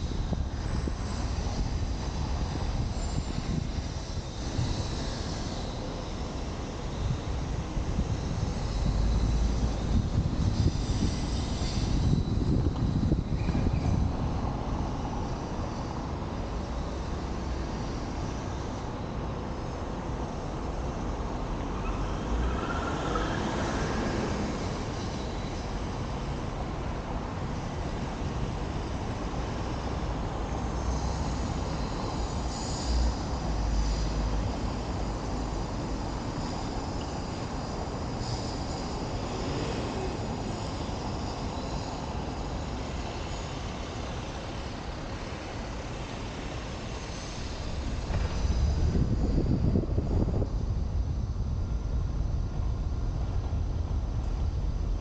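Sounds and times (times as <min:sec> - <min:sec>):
steady low traffic rumble: 0:00.0 - 0:55.0
wind noise: 0:00.0 - 0:55.0
car passing close: 0:21.9 - 0:25.0.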